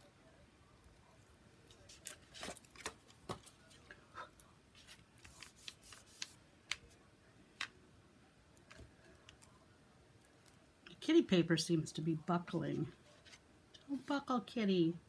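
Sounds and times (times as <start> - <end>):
paper and tool clicks and rustles: 1.7 - 4.0, 4.7 - 7.0.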